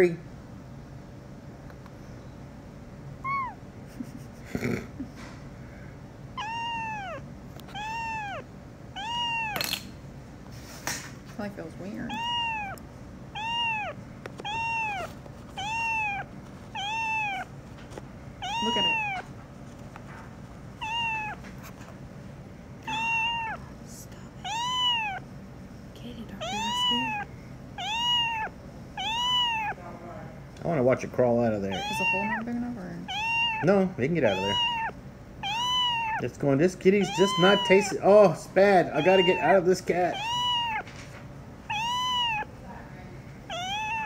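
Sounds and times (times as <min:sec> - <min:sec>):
kitten meowing: 0:03.2 - 0:03.6, 0:06.4 - 0:09.8, 0:12.0 - 0:12.8, 0:13.4 - 0:17.5, 0:18.4 - 0:19.3, 0:20.8 - 0:21.5, 0:22.8 - 0:23.6, 0:24.4 - 0:25.3, 0:26.3 - 0:29.8, 0:31.6 - 0:36.3, 0:37.0 - 0:40.9, 0:41.7 - 0:42.5, 0:43.5 - 0:44.0.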